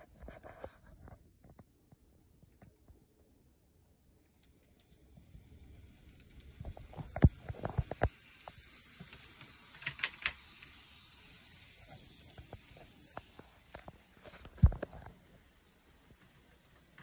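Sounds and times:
model train running on track: 4.3 - 17.0.

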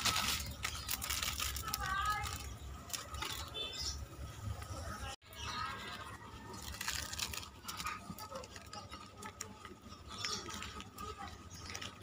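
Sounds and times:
plastic sachets crinkling: 0.0 - 3.8, 5.6 - 12.0.

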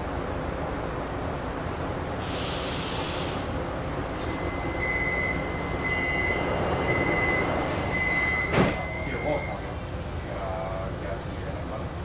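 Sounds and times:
train hum: 0.0 - 12.0
door warning beeps: 4.3 - 9.7
train doors sliding shut: 5.3 - 9.0.

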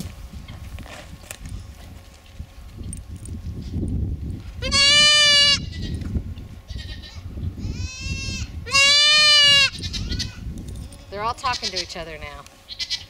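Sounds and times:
goats bleating: 4.6 - 5.9, 6.7 - 10.4.

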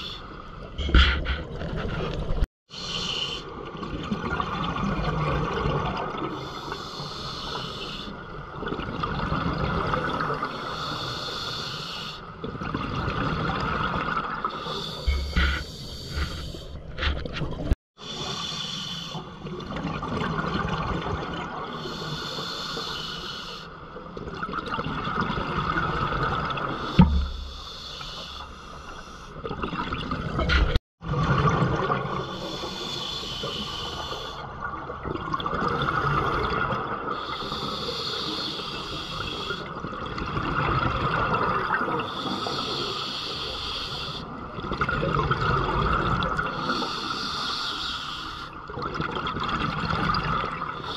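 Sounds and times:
bubbles gurgling underwater: 44.5 - 46.5.

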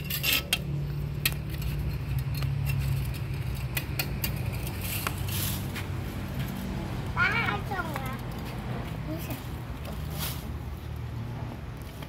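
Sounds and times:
metal tongs clicking and scraping: 0.0 - 5.3.

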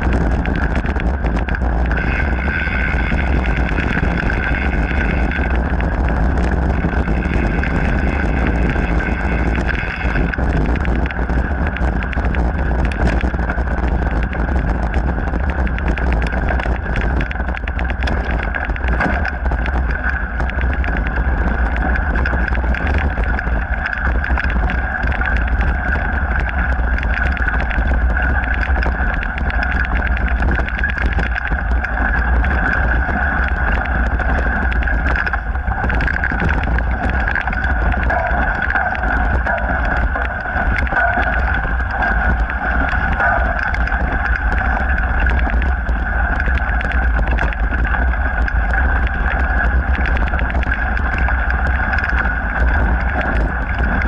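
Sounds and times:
bike rattles and clicks: 0.0 - 54.0
bike whir: 0.0 - 54.0
wind and vibration rumble: 0.0 - 54.0.

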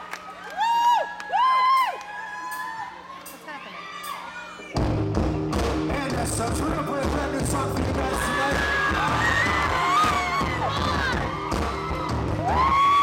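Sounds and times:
crowd whooping and cheering: 0.0 - 4.8, 8.0 - 13.0
live rock band playing: 4.8 - 13.0.

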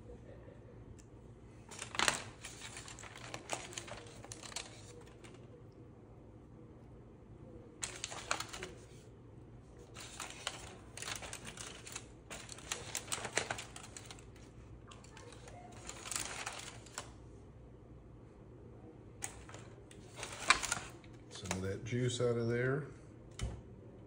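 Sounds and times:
aluminium foil crinkling: 1.7 - 5.6, 7.8 - 9.0, 9.8 - 17.2, 19.2 - 21.6.

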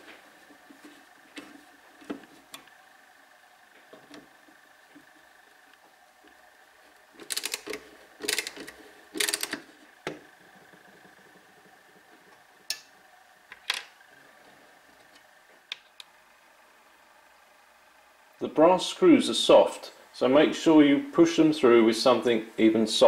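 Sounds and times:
rapid metallic clicking: 7.2 - 9.6.

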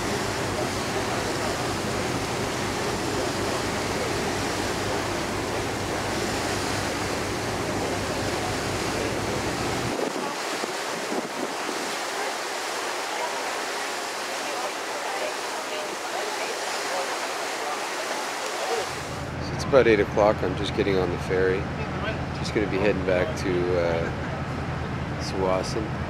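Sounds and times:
wind rushing over microphone: 0.0 - 19.6
water noise: 0.0 - 26.0.

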